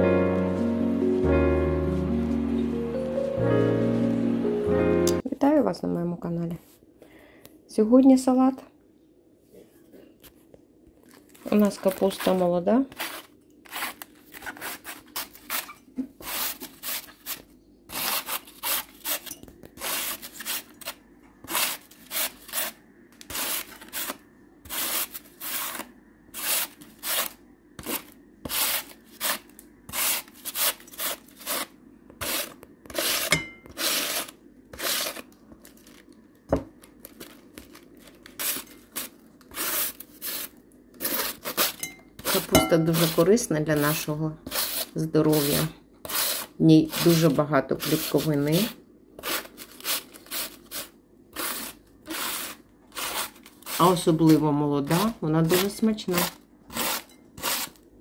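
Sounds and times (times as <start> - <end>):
cabbage shredding rasps: 11.2 - 36.0, 37.1 - 57.8.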